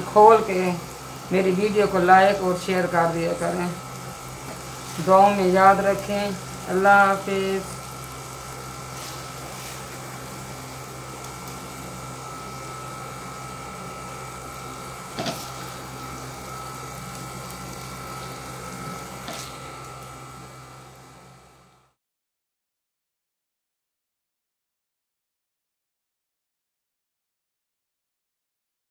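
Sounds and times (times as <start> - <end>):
kitchen hum: 0.0 - 21.9.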